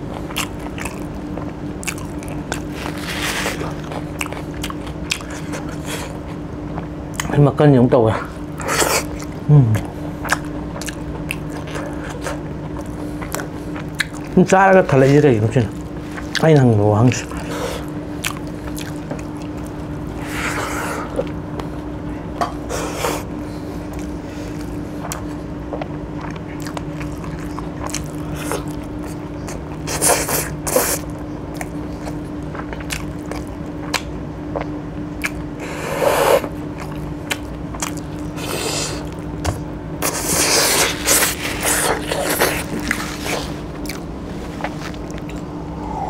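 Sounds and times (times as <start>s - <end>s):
steady low hum: 0.0s - 46.0s
wet chewing and lip smacks: 0.2s - 7.4s, 8.6s - 14.4s, 18.2s - 19.9s, 23.9s - 35.5s, 36.4s - 45.6s.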